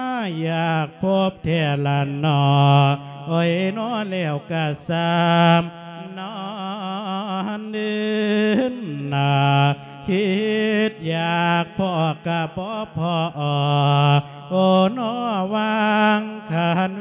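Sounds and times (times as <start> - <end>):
monk singing into a microphone: 0.0 - 17.0.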